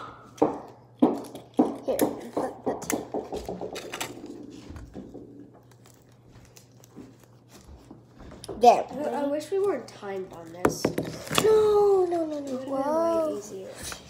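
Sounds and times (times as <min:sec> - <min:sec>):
small ball bouncing: 0:00.0 - 0:04.4, 0:10.6 - 0:11.4.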